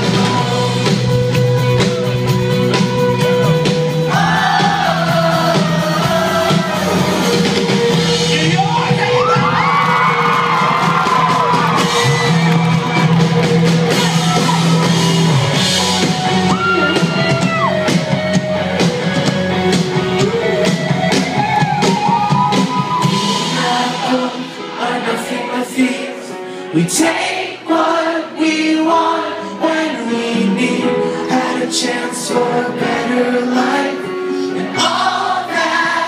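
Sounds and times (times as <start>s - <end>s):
person singing lead vocal: 0.0s - 1.3s, 3.9s - 9.5s, 23.0s - 36.0s
live rock band playing: 0.0s - 27.4s
crowd shouting and whooping: 8.4s - 18.2s.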